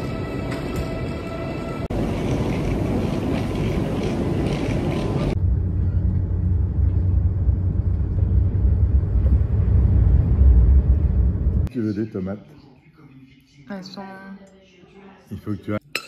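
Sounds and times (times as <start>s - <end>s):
busy station platform ambience: 0.0s - 7.1s
train interior rumble: 0.0s - 11.7s.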